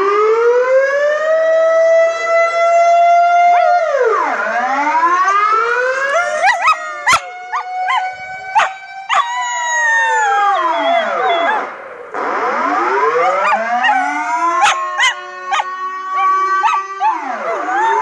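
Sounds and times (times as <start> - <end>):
air-raid siren wailing: 0.0 - 18.0
puppy howling and yelping: 5.3 - 11.7, 13.2 - 18.0.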